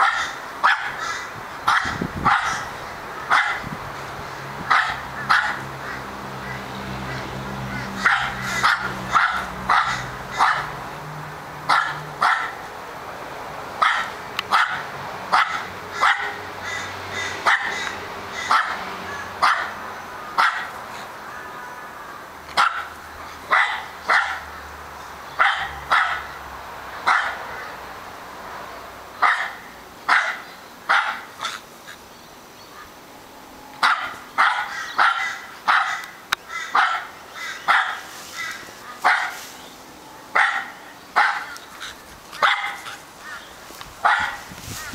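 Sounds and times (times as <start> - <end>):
dog barking: 0.0 - 1.1, 1.7 - 2.7, 3.3 - 3.7, 4.7 - 5.7, 8.0 - 10.8, 11.7 - 12.6, 13.8 - 16.4, 17.4 - 18.8, 19.4 - 19.8, 20.4 - 20.8, 22.6 - 24.5, 25.4 - 26.4, 27.0 - 27.5, 29.2 - 31.6, 33.8 - 39.5, 40.3 - 41.6, 42.4 - 43.0, 44.0 - 44.5.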